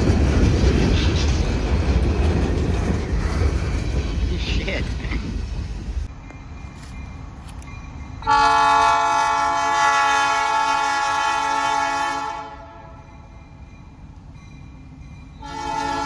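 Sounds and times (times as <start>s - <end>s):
locomotive engine rumbling: 0.0s - 16.0s
locomotive air horn: 8.2s - 13.1s, 15.4s - 16.0s.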